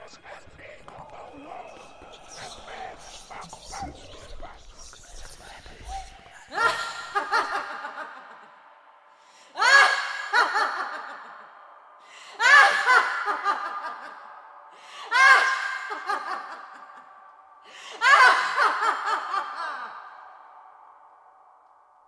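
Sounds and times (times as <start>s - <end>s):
woman laughing loudly: 6.5s - 8.5s, 12.4s - 14.1s.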